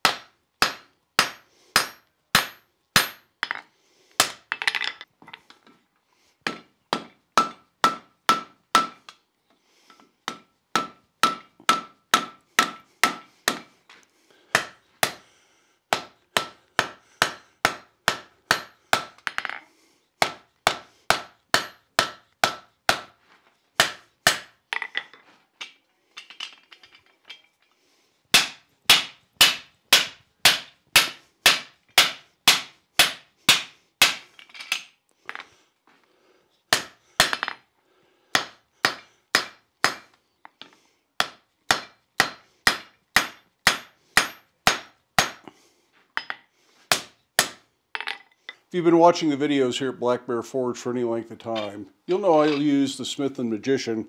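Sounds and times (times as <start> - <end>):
hammer striking steel on anvil: 0.0 - 3.6, 6.5 - 9.0, 10.3 - 13.7, 14.5 - 15.2, 15.9 - 19.6, 20.2 - 23.1, 23.8 - 24.5, 28.4 - 34.2, 38.4 - 40.0, 41.2 - 45.4, 46.2 - 47.6.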